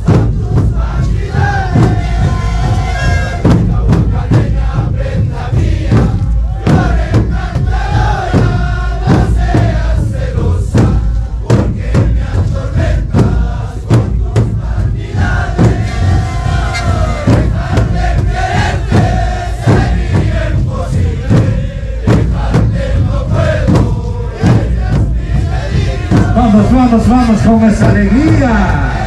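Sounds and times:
bass drum beat: 0:00.0 - 0:29.0
panpipes playing melody: 0:02.8 - 0:03.5, 0:15.9 - 0:17.8.

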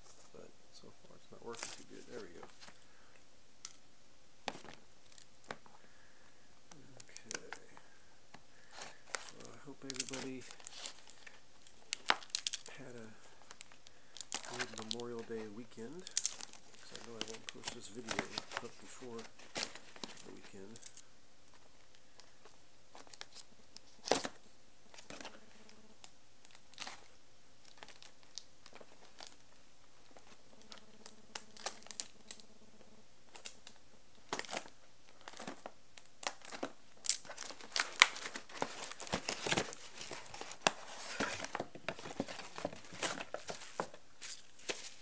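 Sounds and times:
wrapping crinkling and tearing: 0:01.4 - 0:02.8, 0:08.5 - 0:25.4, 0:26.4 - 0:32.4, 0:33.3 - 0:45.0
package taps and rustles: 0:04.5 - 0:04.8, 0:15.9 - 0:20.9, 0:34.3 - 0:45.0.

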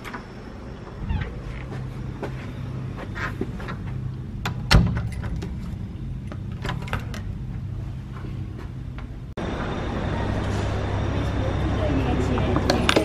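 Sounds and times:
low steady hum: 0:00.0 - 0:13.0
door slamming shut: 0:04.6 - 0:05.4
busy room background: 0:05.0 - 0:13.0.

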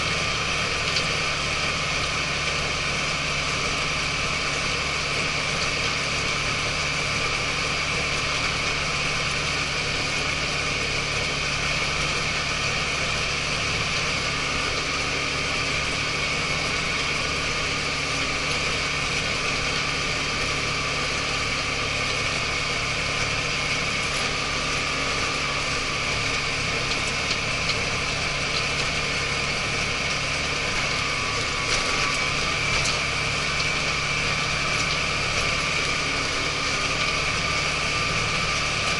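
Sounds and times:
tractor engine whining: 0:00.0 - 0:38.9
crawler tracks running: 0:08.0 - 0:38.9.

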